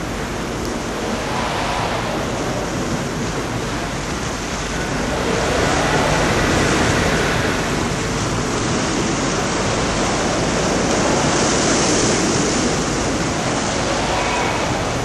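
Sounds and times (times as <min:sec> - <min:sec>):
sea surf: 0:00.0 - 0:15.0
wind: 0:00.0 - 0:15.0
wind buffeting microphone: 0:00.0 - 0:15.0.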